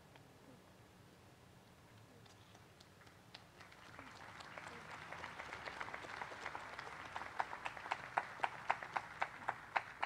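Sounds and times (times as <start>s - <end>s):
crowd applauding: 3.4s - 10.0s.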